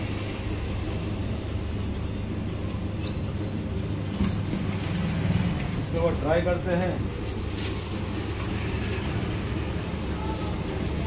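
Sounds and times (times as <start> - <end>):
steady low hum: 0.0 - 11.0
plastic packing crinkling: 7.1 - 8.6.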